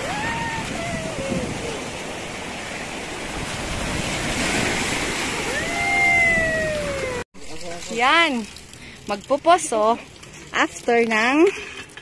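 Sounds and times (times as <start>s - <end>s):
person calling out: 0.0s - 2.0s, 5.5s - 7.2s
waves breaking on rocky shore: 0.0s - 7.2s.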